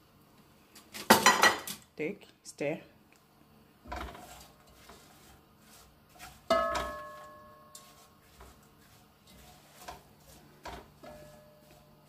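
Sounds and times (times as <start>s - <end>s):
stirring vegetables in a pot: 3.8s - 12.0s.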